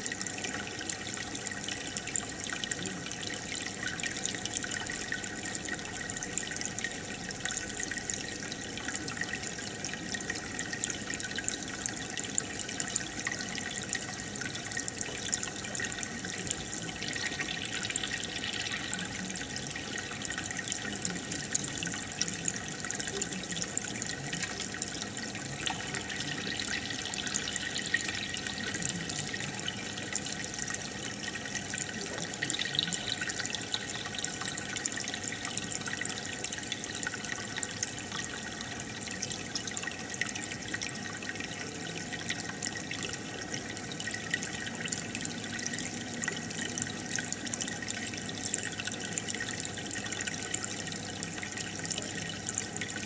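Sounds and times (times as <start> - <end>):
aquarium water trickling and bubbling: 0.0 - 53.0
fine continuous crackle: 0.0 - 53.0.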